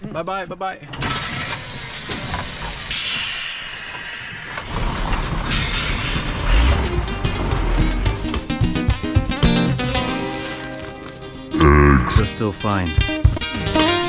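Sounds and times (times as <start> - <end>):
truck creaking and rattling: 4.7 - 9.6.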